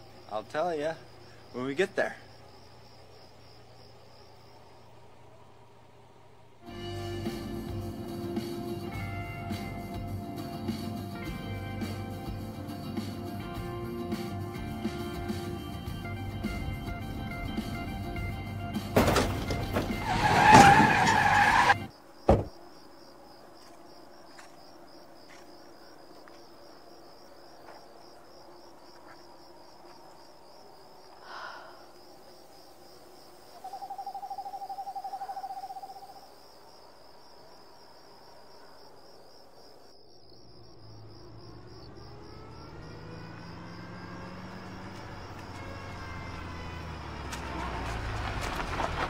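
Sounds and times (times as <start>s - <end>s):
high insect trill: 0.0s - 5.8s, 6.7s - 49.0s
car approaching: 2.5s - 12.5s, 13.4s - 21.9s, 40.6s - 49.0s
sharp knock: 22.3s - 22.5s.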